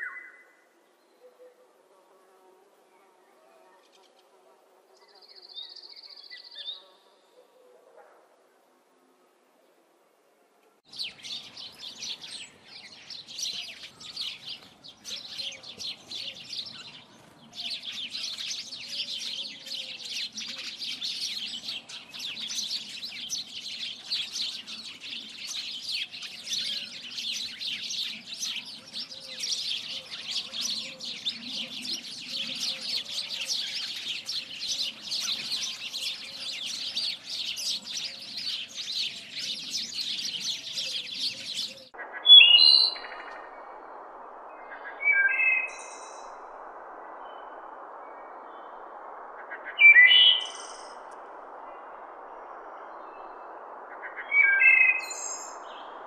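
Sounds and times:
small birds chirping: 10.9 - 43.4.

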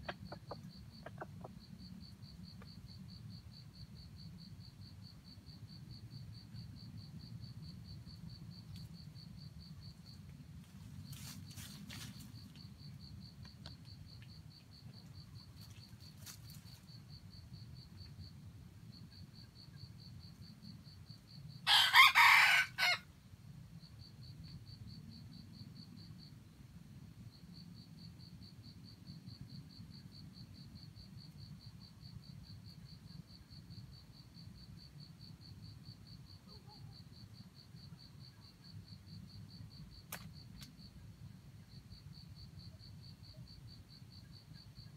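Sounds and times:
insects chirring: 0.0 - 23.0
rooster crowing: 21.6 - 23.1.

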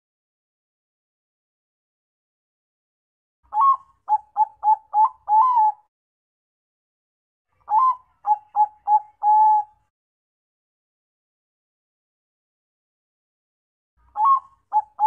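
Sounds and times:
dove cooing: 3.5 - 5.9, 7.6 - 9.8, 14.2 - 15.0.

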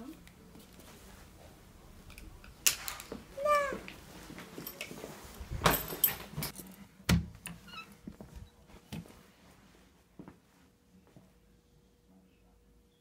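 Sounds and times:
handling knocks and rustles: 2.6 - 9.2.

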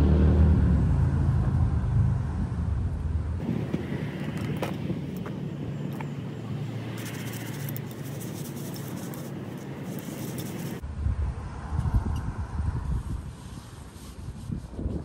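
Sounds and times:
low outdoor rumble: 0.0 - 15.0
rope clicks and rustles: 6.9 - 10.8.

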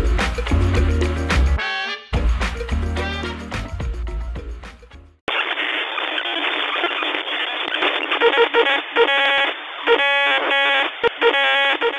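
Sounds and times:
radio static hiss: 5.3 - 11.9.

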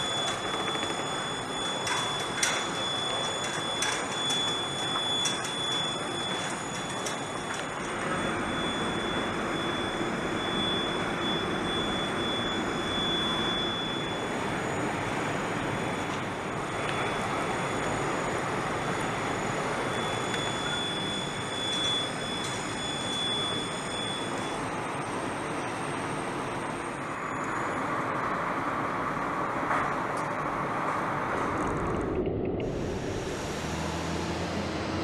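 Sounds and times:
high-pitched whine: 0.0 - 35.0
mechanical rushing noise: 30.4 - 35.0.

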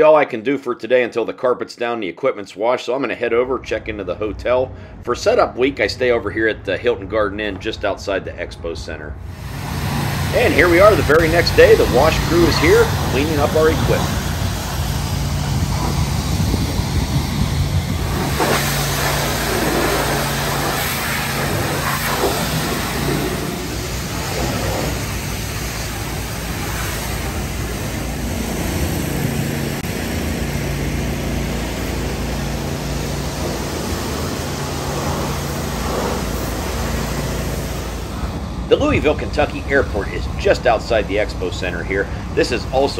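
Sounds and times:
low machine hum: 9.2 - 42.9
pressure washer spray hiss: 9.3 - 38.4.

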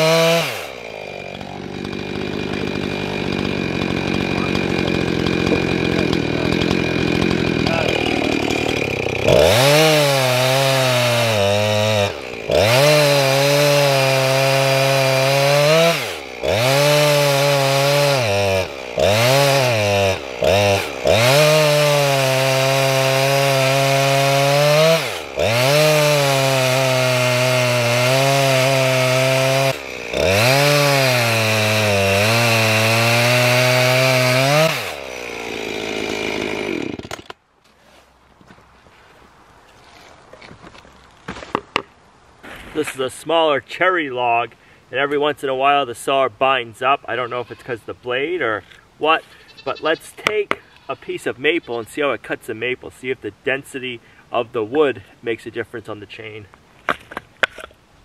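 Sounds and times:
chainsaw cutting wood: 0.0 - 37.4.

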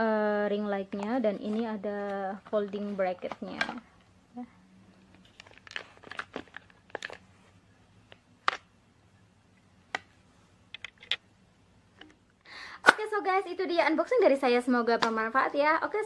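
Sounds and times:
packaging rustling and crinkling: 5.0 - 7.6.

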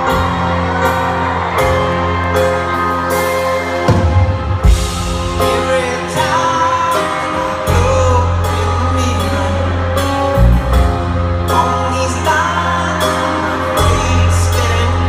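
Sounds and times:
live band playing: 0.0 - 15.0
steady bass: 0.0 - 15.0
drum hits: 3.9 - 5.8
man singing: 5.2 - 15.0.

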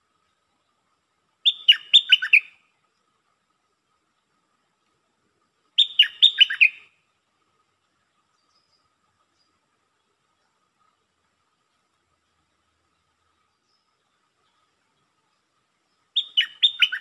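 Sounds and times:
bird singing: 1.4 - 2.7, 5.7 - 7.1, 7.9 - 10.6, 12.8 - 17.0.

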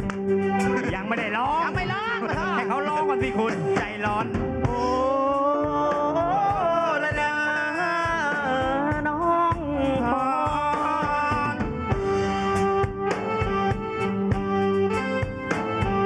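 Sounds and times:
gliding lead melody: 0.0 - 16.0
live band music: 0.0 - 16.0
steady drum beat: 0.0 - 16.0
person singing a song: 0.6 - 12.3.

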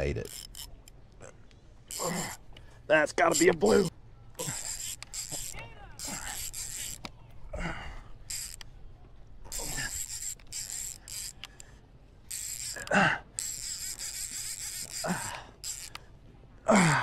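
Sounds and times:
fishing reel ratcheting: 0.0 - 1.0, 1.9 - 2.4, 3.1 - 7.1, 8.2 - 8.7, 9.5 - 11.7, 12.3 - 16.1
grunting: 1.2 - 2.4, 9.5 - 10.0, 12.7 - 13.3, 15.0 - 15.5, 16.6 - 17.0.

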